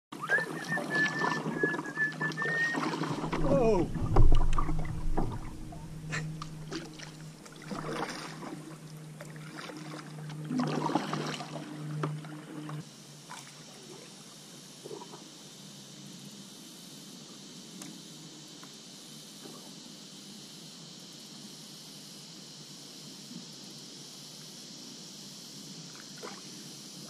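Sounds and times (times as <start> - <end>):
paddle splashing in water: 0.2 - 13.5
low steady hum: 2.4 - 12.8
high steady hiss: 3.2 - 7.6, 12.8 - 27.0.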